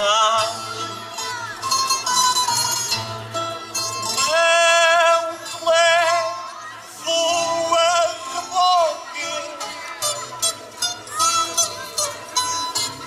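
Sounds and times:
plucked guitar: 0:00.0 - 0:13.0.

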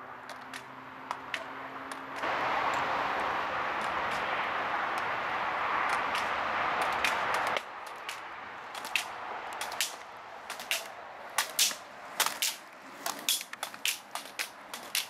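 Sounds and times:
steady rushing noise: 0:00.0 - 0:15.0
sharp clicks: 0:05.9 - 0:15.0.

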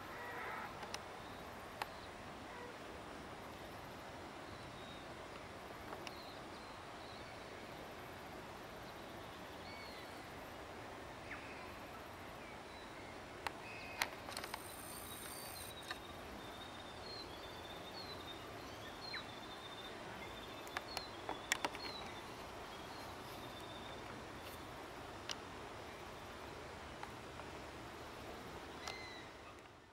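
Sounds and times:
small birds chirping: 0:13.7 - 0:24.7.

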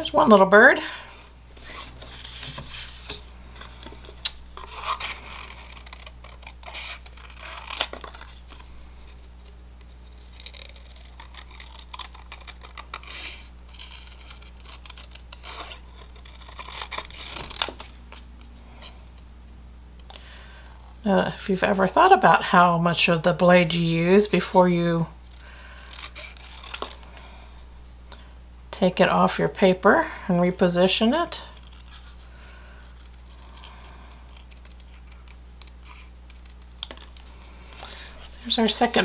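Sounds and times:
paper rustling: 0:01.5 - 0:09.2, 0:31.6 - 0:39.0.

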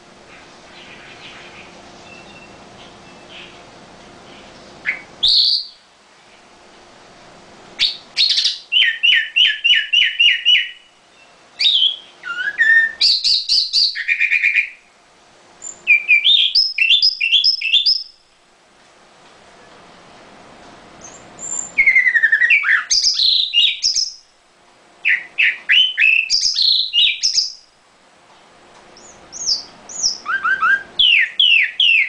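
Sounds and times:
bird singing fast repeated notes: 0:00.0 - 0:05.9, 0:07.8 - 0:14.9, 0:15.6 - 0:18.2, 0:21.0 - 0:24.3, 0:25.0 - 0:27.7, 0:29.0 - 0:32.0
bird call: 0:07.8 - 0:14.8, 0:25.0 - 0:27.6, 0:29.0 - 0:32.0.

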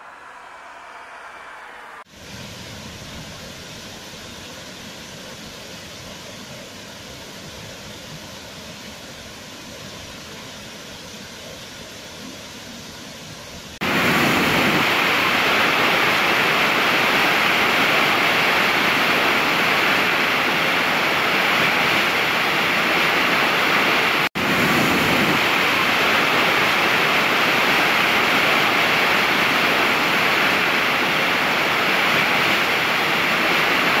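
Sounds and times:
waterfall rushing: 0:13.7 - 0:34.0.

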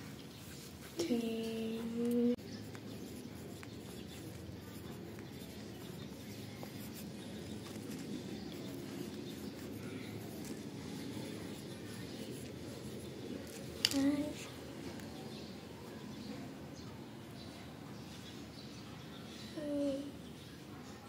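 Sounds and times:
pencil writing on paper: 0:00.3 - 0:13.9.

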